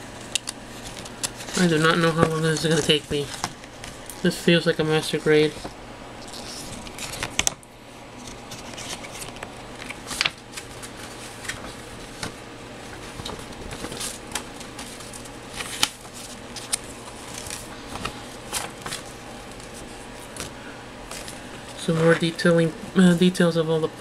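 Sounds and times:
plastic bags crinkling: 0.0 - 4.3.

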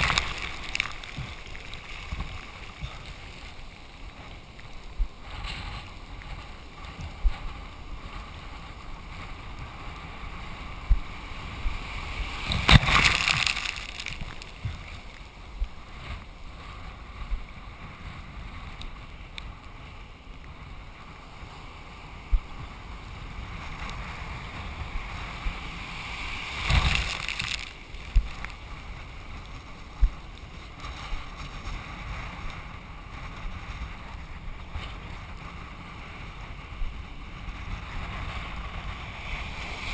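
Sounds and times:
wind on microphone: 0.0 - 39.9
water splashing against board: 12.4 - 15.2, 26.5 - 28.4.

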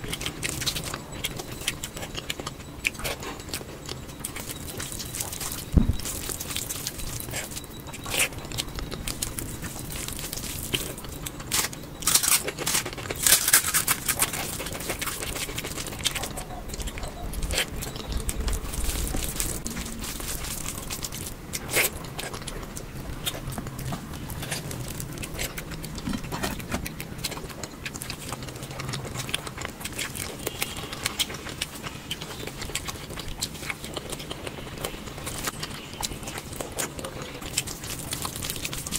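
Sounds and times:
chewing: 0.0 - 38.9.

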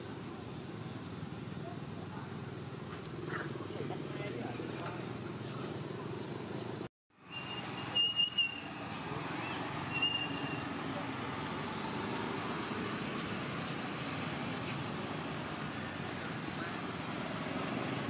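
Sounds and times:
outdoor background noise: 0.0 - 18.0.

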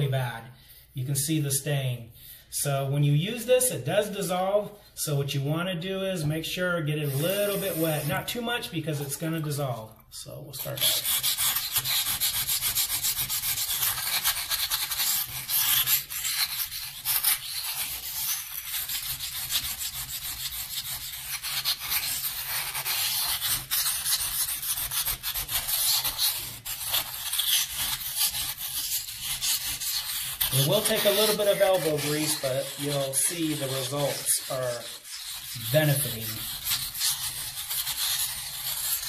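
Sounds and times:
pumice stone scraping porcelain sink: 6.2 - 39.0.

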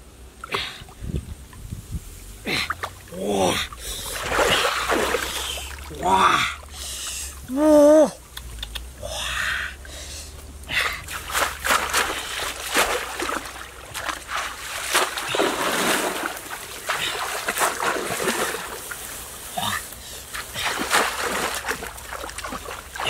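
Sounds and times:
splashing in shallow muddy water: 0.3 - 23.0
man calling out: 2.5 - 3.8, 5.4 - 8.2.

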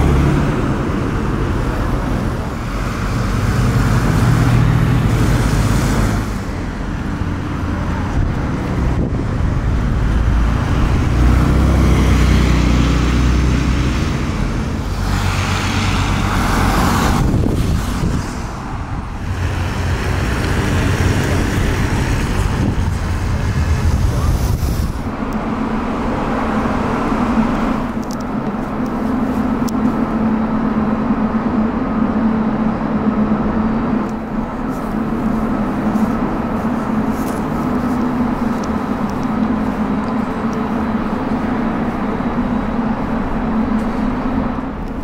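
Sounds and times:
sports cars driving past: 0.0 - 28.5.

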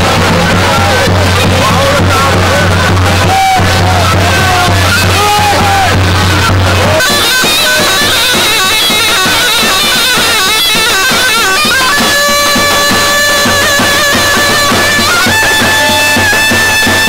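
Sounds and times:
shrill reed instrument melody: 0.0 - 17.0
steady drumbeat: 0.0 - 17.0.

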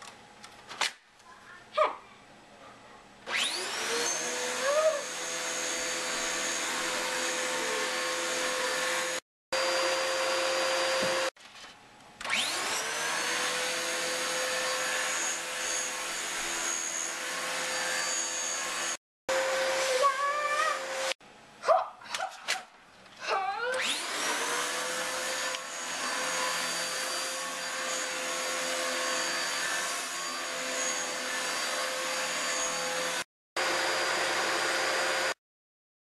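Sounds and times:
vacuum cleaner motor whine: 3.3 - 11.3, 12.2 - 21.2, 23.8 - 35.4.

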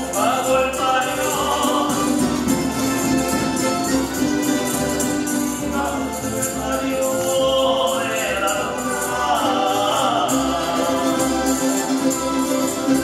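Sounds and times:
strummed guitars and bandurrias: 0.0 - 13.0
men singing in chorus: 0.1 - 2.4, 5.6 - 13.0.

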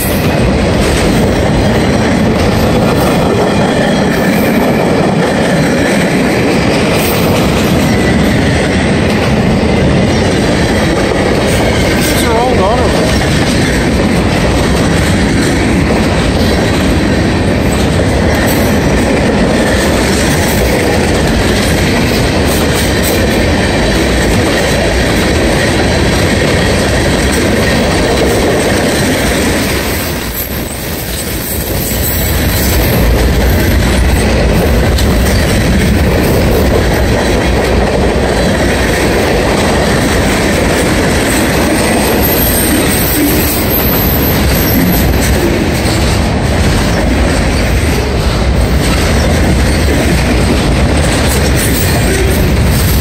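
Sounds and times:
freight train wheels on rails: 0.0 - 53.0.

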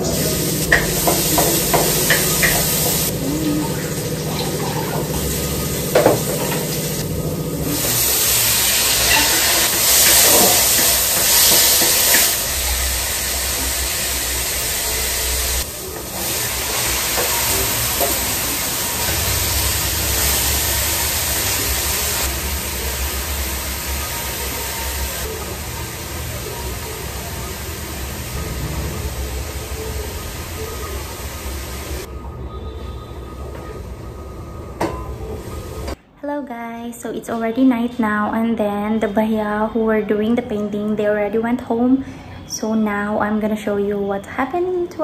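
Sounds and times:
vegetables sizzling in a pan: 0.0 - 32.1.

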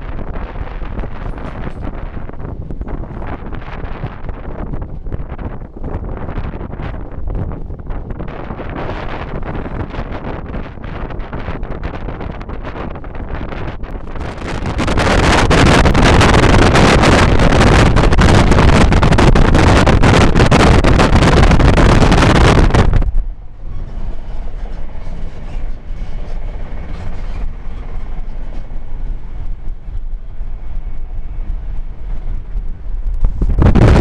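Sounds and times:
train wheels on rails: 0.0 - 34.0.

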